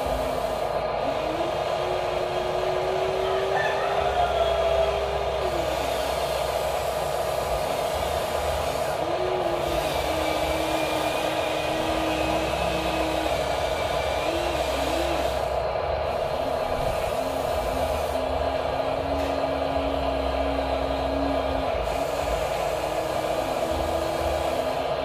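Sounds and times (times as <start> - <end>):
electric motors whining: 0.0 - 25.0.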